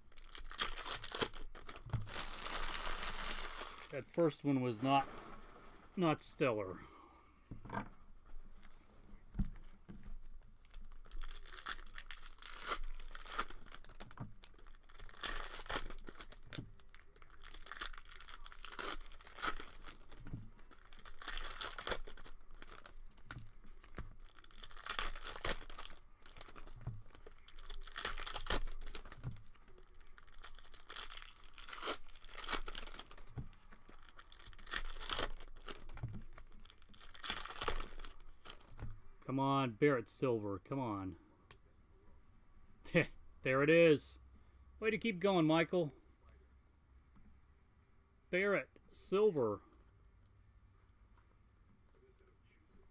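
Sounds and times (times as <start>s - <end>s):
plastic wrappers tearing and crinkling: 0.0s - 5.0s, 10.2s - 38.8s.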